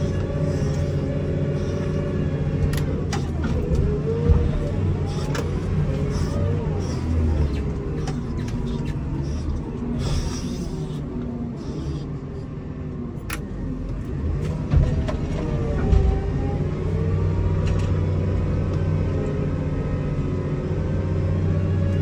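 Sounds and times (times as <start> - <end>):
diesel engine under load: 0.0 - 22.0
heavy thumps: 3.0 - 7.3.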